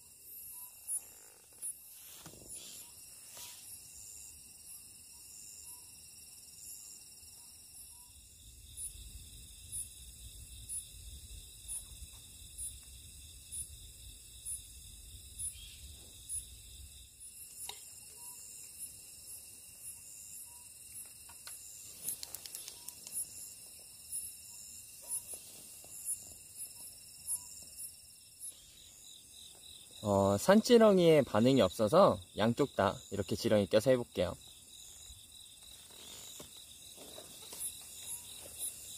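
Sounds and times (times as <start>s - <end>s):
insect chirping: 0.0s - 38.9s
insects trilling: 0.0s - 38.9s
faint clicks: 21.0s - 23.3s.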